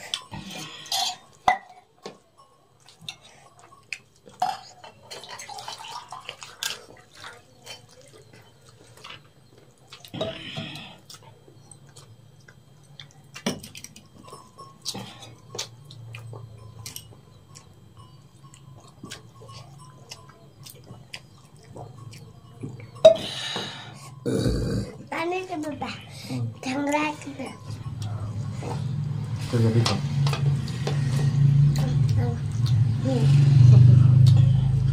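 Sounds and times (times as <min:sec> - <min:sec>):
water pouring from jug: 0:05.2 - 0:07.6.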